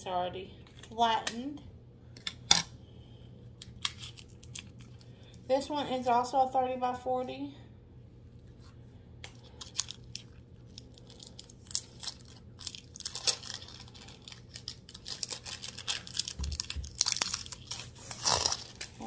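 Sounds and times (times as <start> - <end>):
packaging crinkling: 3.6 - 5.2, 9.3 - 19.0.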